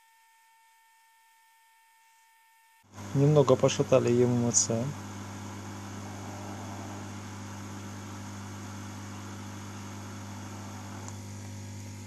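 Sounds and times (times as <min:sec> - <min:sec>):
hot air blowing: 0:02.9 - 0:12.0
low steady hum: 0:02.9 - 0:12.0.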